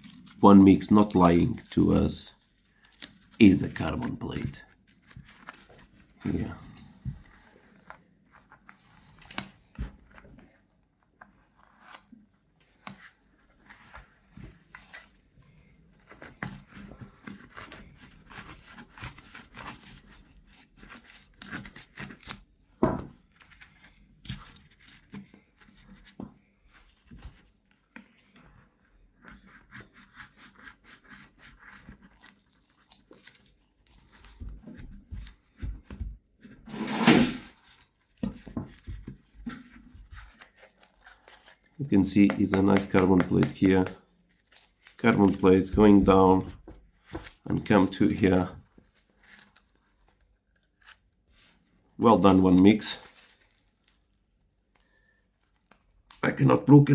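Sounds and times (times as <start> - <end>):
knife cutting through foam: 15.9 - 22.4, 29.2 - 32.6.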